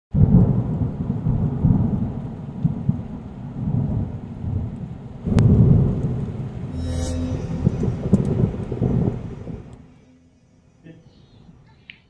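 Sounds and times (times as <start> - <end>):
rolling thunder: 0.2 - 6.7.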